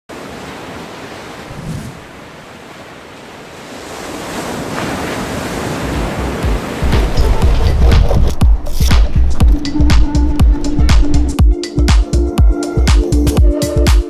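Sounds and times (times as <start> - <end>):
breaking waves: 0.1 - 11.4
deep low rumble: 6.8 - 11.4.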